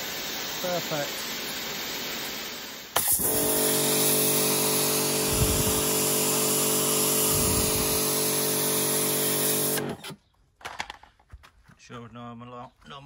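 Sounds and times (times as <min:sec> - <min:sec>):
water jet hissing: 0:00.0 - 0:09.9
pressure washer motor humming: 0:03.0 - 0:10.0.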